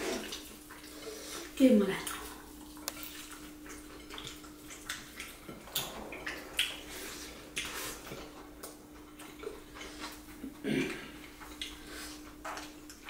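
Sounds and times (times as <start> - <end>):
wet chewing and lip-smacking: 2.0 - 10.6, 11.2 - 13.0.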